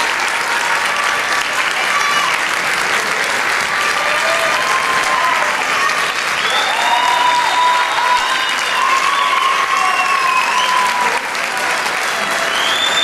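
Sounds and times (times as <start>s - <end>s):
audience applauding: 0.0s - 13.0s
high-pitched calls from crowd: 3.9s - 11.3s, 12.0s - 13.0s.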